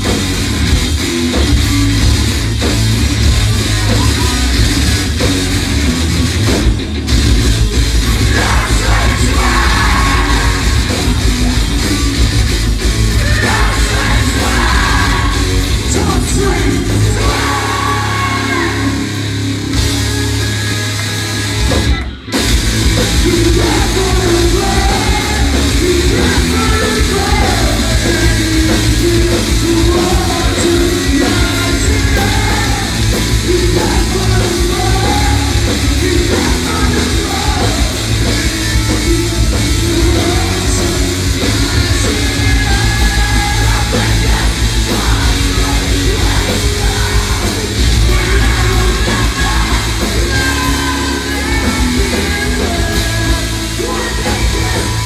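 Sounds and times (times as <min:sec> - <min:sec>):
live rock band: 0:00.0 - 0:55.0
singer yelling and singing: 0:08.0 - 0:19.6, 0:22.9 - 0:55.0.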